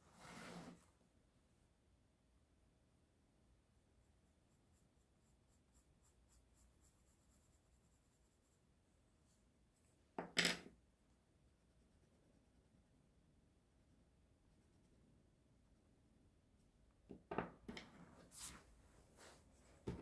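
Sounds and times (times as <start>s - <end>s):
scratchy drawing strokes: 5.2s - 8.4s, 18.2s - 19.5s.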